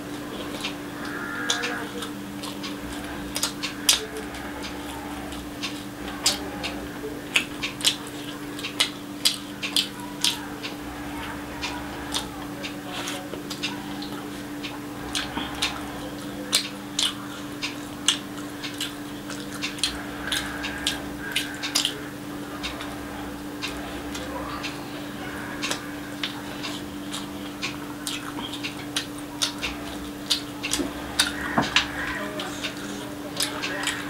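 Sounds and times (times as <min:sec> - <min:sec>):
steady low hum: 0:00.0 - 0:34.0
wet chewing mouth clicks: 0:00.4 - 0:10.9, 0:11.6 - 0:22.0, 0:25.6 - 0:31.9.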